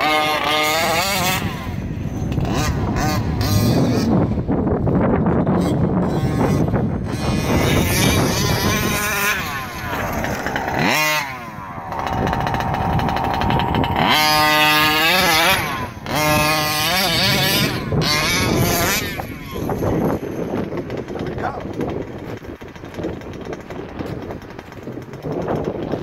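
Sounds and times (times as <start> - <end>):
model truck engine revving: 6.0 - 19.7.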